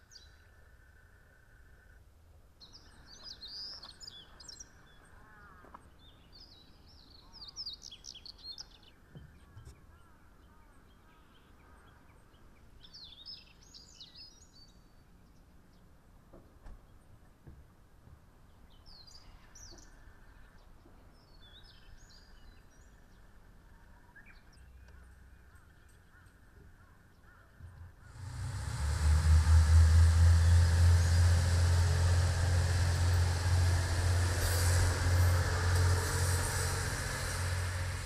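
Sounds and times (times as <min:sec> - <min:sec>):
diesel railcar engine drone: 0:27.7 - 0:38.0
train wheel and rail noise: 0:27.8 - 0:38.0.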